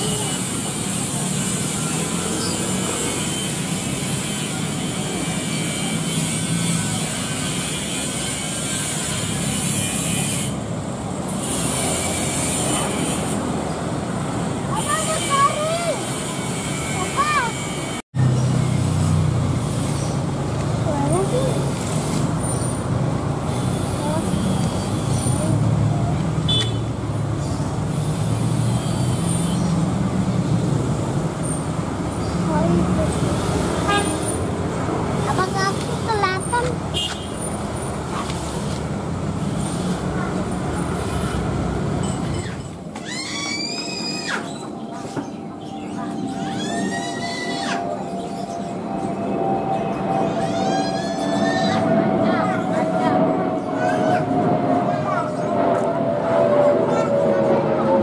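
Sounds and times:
distant jet engine rush: 0.0 - 58.0
sharp high squeak: 42.0 - 44.8, 45.8 - 49.1.

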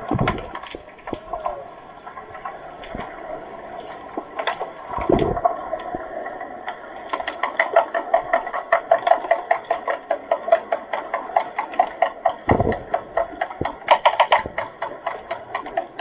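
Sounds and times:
sharp underwater clicks and knocks: 0.0 - 1.6, 4.1 - 16.0
low underwater thump: 12.5 - 12.9.

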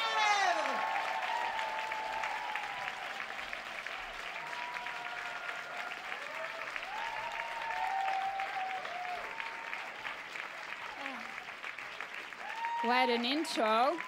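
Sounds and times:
voices whooping: 0.0 - 3.2, 4.3 - 9.9, 12.4 - 14.0
audience applauding: 0.0 - 14.0.

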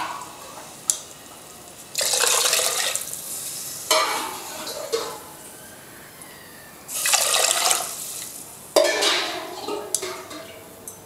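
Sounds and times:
water pouring into pot: 1.9 - 3.9, 6.9 - 8.5.

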